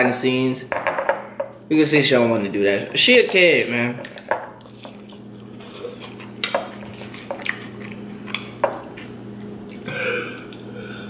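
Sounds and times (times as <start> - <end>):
steady low hum: 0.0 - 11.0
chewing noodles: 4.0 - 10.7.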